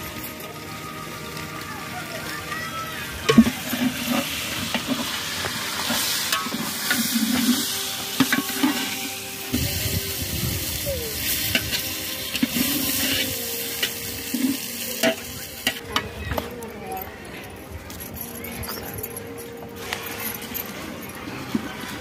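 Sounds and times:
potatoes sizzling in oil: 0.0 - 15.8
metal ladle scraping pot: 3.3 - 15.8.

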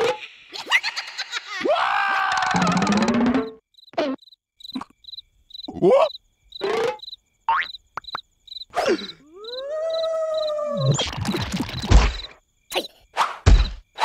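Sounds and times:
swooping cartoon noises: 0.0 - 4.2, 8.8 - 14.0
cricket chirping: 3.5 - 14.0.

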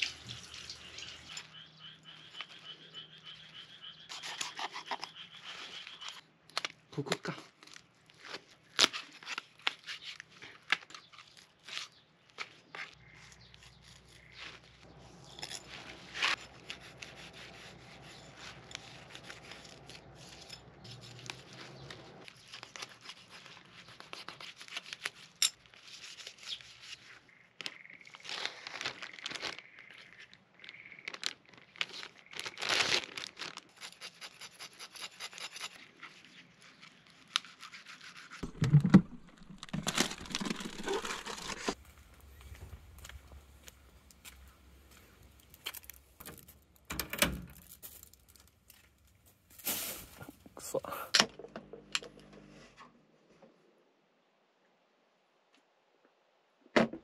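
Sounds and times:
knife scraping and slicing fish: 37.3 - 38.4.

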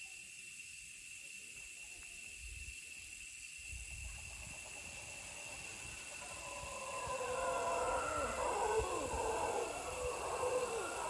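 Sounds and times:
even hiss: 0.0 - 11.0
high-pitched insect drone: 0.0 - 11.0
wavering animal call: 6.0 - 11.0.

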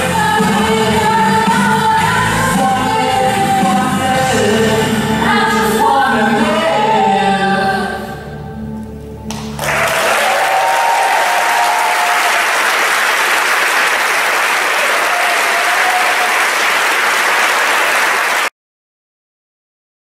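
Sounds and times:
people singing duet: 0.0 - 8.5
audience applauding: 9.3 - 18.5.

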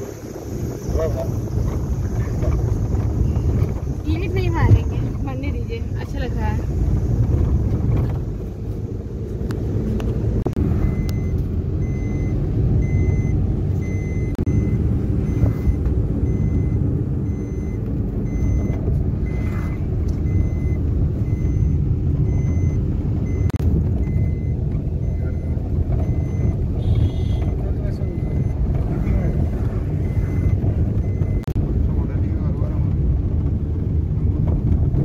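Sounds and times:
car engine and tyres rumbling: 0.0 - 35.0
short electronic beeps: 10.7 - 31.6.

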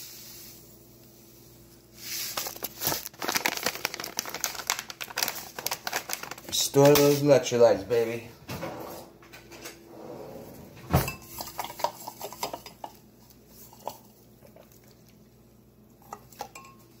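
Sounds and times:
drinking glass clinking: 16.5 - 16.9.

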